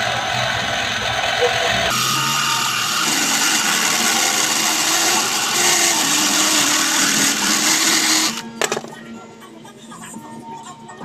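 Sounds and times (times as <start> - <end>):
electric drill running: 0.0 - 8.5.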